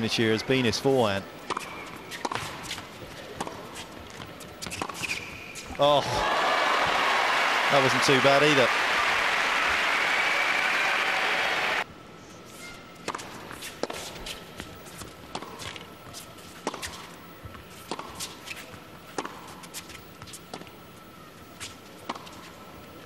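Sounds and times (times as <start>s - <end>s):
tennis ball bouncing on hard court: 1.5s - 2.8s, 3.4s - 5.2s, 15.3s - 15.8s, 16.6s - 18.3s, 22.1s - 22.4s
murmur of arena crowd: 5.7s - 12.4s.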